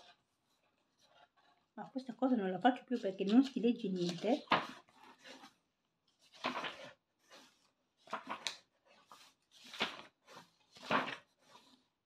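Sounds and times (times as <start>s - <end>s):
book pages rustling: 0.0s - 12.0s.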